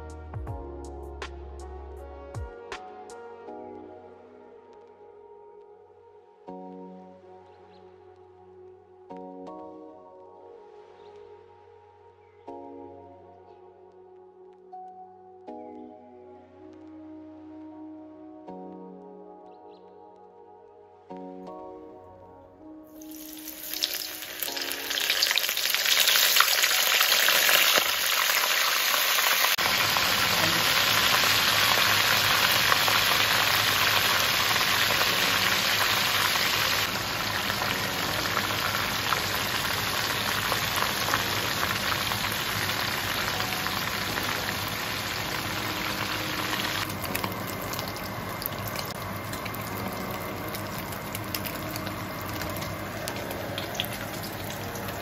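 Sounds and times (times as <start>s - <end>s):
hot oil sizzling in a wok: 23.0s - 55.0s.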